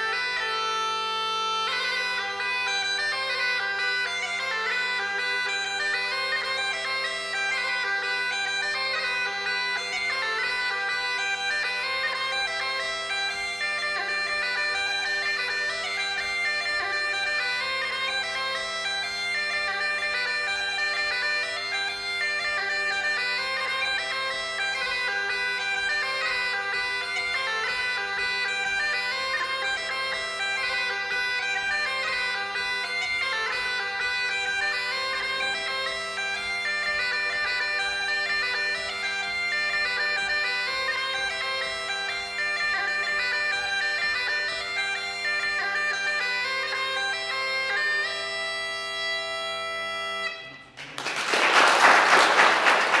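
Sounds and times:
bagpipes playing a tune: 0.0 - 50.8
applause: 50.7 - 53.0.

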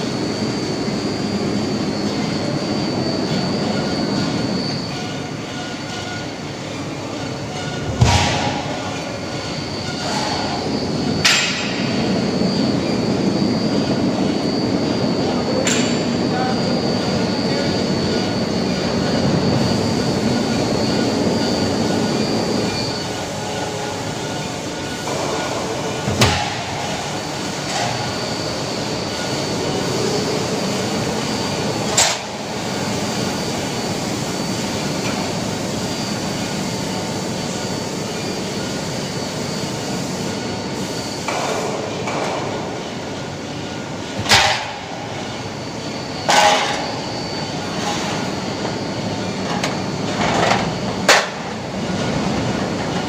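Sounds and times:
high steady machine whine: 0.0 - 53.0
machine rollers humming: 0.0 - 53.0.

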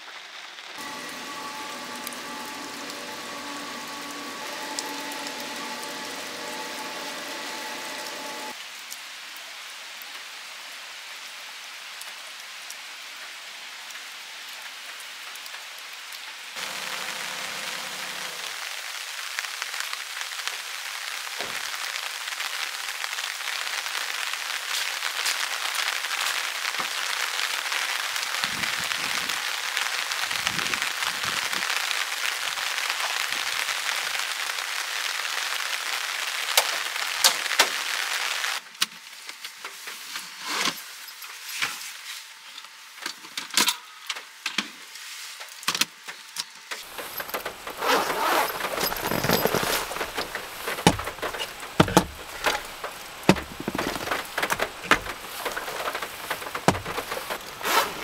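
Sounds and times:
steady rain: 0.0 - 43.3, 44.1 - 58.0
rustling: 46.8 - 58.0
clicks and knocks: 46.9 - 57.6
storage case opening: 46.9 - 58.0.

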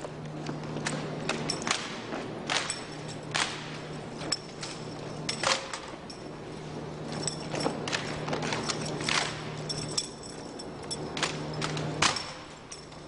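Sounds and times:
rifles and boots slapping and clacking: 0.0 - 6.3, 7.0 - 13.0
steady low hum: 0.0 - 13.0
high metallic ring: 2.7 - 13.0.

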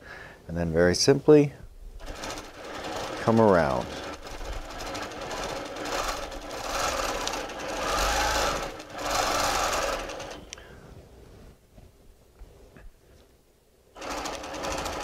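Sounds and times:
quilting machine stitching: 2.0 - 10.5, 14.0 - 15.0.

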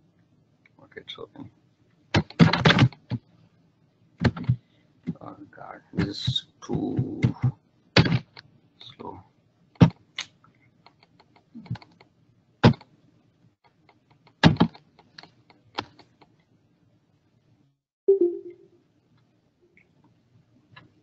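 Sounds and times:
mouse and keyboard clicking: 9.8 - 12.9, 13.7 - 16.3.

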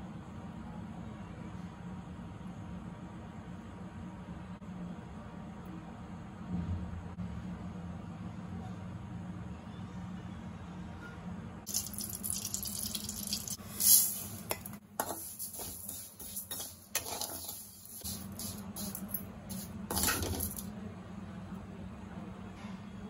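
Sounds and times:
metal ladle scraping a metal pan: 13.6 - 20.6.

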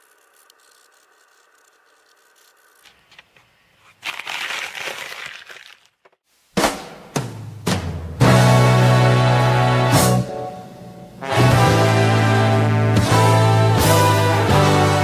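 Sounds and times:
paper rustling: 0.0 - 6.2.

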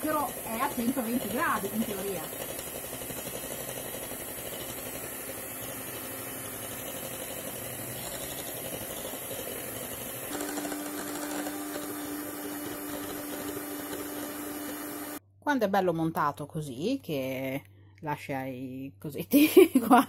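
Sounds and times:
electric hand mixer whipping: 0.0 - 15.2.

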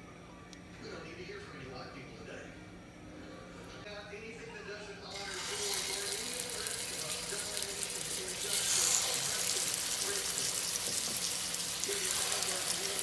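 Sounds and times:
patties sizzling in hot oil: 5.1 - 13.0.

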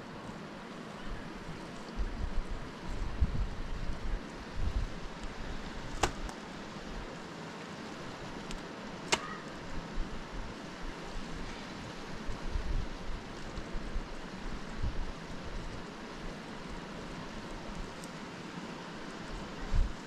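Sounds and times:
wind buffeting microphone: 1.0 - 7.1, 9.5 - 16.8, 19.2 - 20.0.

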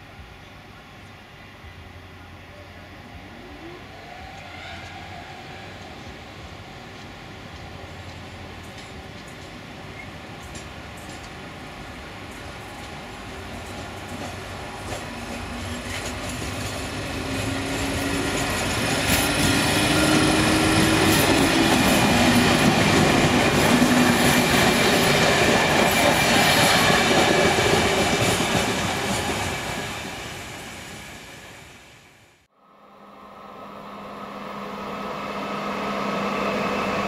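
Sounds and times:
train rumbling past: 0.0 - 37.0
train motor whine: 12.0 - 25.2.

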